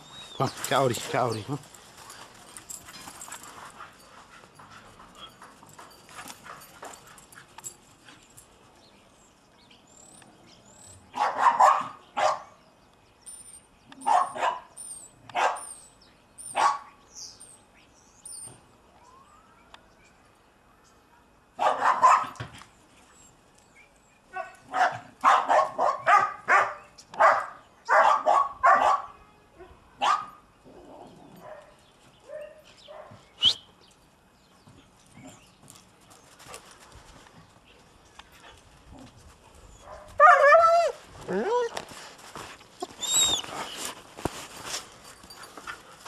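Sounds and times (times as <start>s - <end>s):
dog barking: 11.2s - 12.5s, 14.0s - 14.7s, 15.4s - 15.6s, 16.6s - 16.9s, 21.6s - 22.4s, 24.4s - 29.2s, 30.0s - 30.4s, 39.9s - 40.6s.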